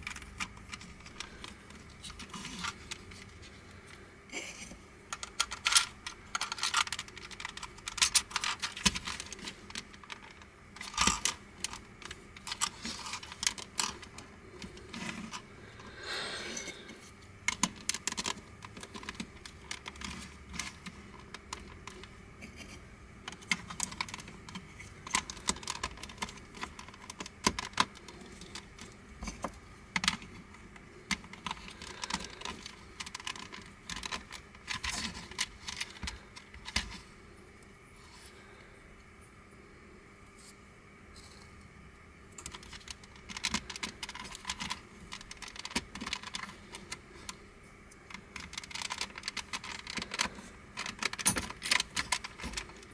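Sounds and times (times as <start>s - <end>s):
plastic puzzle pieces clicking: 5.1s - 15.4s, 17.5s - 22.1s, 23.2s - 28.9s, 29.9s - 37.0s, 42.4s - 47.0s, 48.0s - 52.9s.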